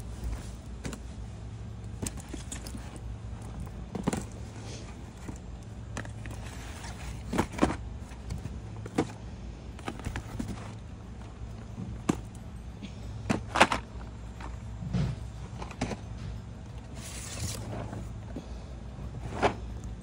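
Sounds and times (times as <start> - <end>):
steady low hum: 0.0 - 20.0
cardboard boxes shuffled and knocked: 1.9 - 9.2, 9.8 - 10.9.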